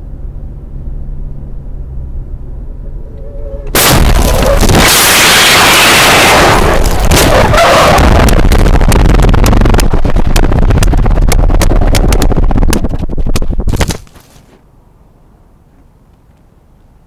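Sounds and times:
car rolling over in a crash: 0:03.4 - 0:09.0.

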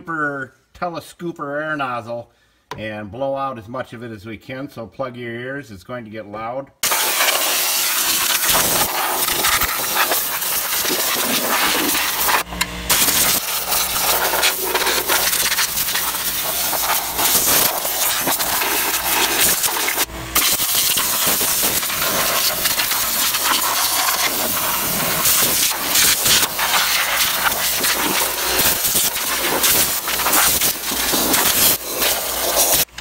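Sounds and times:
compressed air hissing from nozzle: 0:06.8 - 0:33.0.

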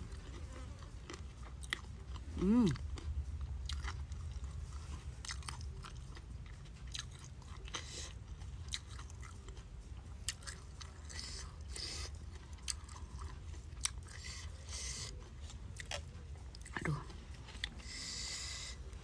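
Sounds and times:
low steady rumble: 0:00.0 - 0:19.0
person chewing: 0:00.0 - 0:19.0.

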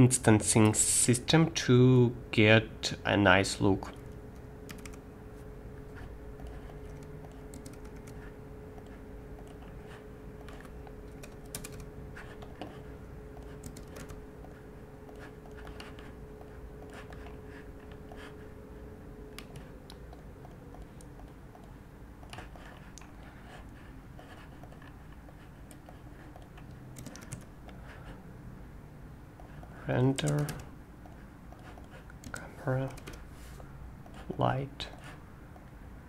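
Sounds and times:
faint steady hum: 0:00.0 - 0:36.0
keyboard and mouse clicks: 0:03.9 - 0:05.0, 0:06.4 - 0:08.2, 0:08.8 - 0:09.8, 0:10.4 - 0:12.8, 0:13.4 - 0:18.2, 0:19.3 - 0:23.2, 0:24.5 - 0:27.8, 0:29.4 - 0:33.3.

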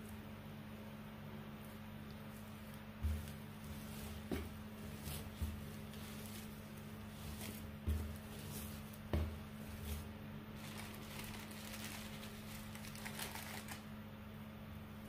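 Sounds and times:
steady low hum: 0:00.0 - 0:15.0
pressing and patting dough: 0:01.5 - 0:14.0
dough thumping on countertop: 0:03.0 - 0:06.5, 0:07.3 - 0:10.1.

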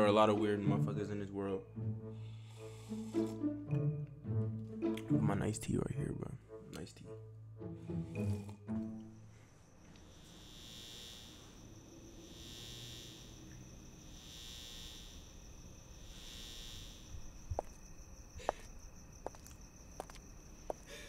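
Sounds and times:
streetlight electric buzzing: 0:09.7 - 0:18.4
steady high whine: 0:09.8 - 0:17.8
high-heeled footsteps on pavement: 0:17.5 - 0:21.0.

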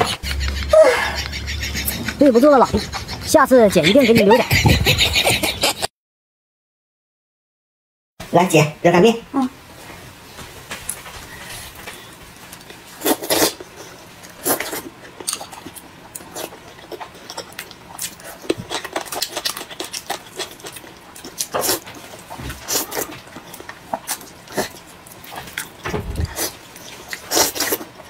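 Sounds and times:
wet chewing mouth noises: 0:13.0 - 0:27.9.

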